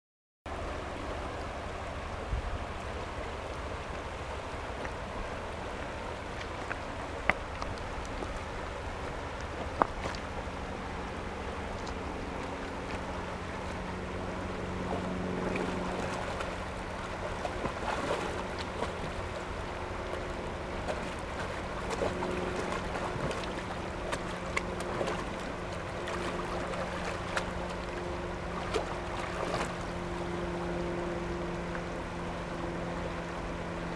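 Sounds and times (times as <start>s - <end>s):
faint low hum: 0.5s - 33.9s
river running over rocks: 0.5s - 33.9s
sharp splashes and clicks: 5.8s - 10.4s, 11.7s - 14.0s, 14.8s - 30.0s
dog splashing through water: 14.7s - 29.8s.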